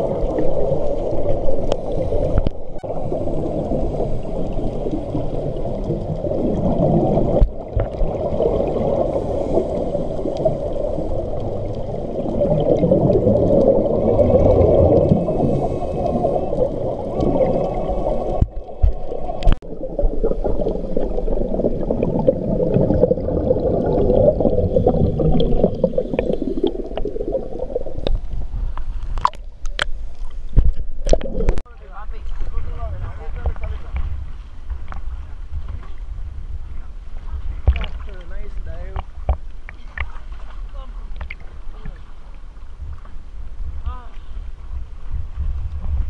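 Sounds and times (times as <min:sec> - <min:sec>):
bubbles rising underwater: 0:00.0 - 0:29.4, 0:30.6 - 0:31.7
muffled underwater rumble: 0:00.0 - 0:46.0.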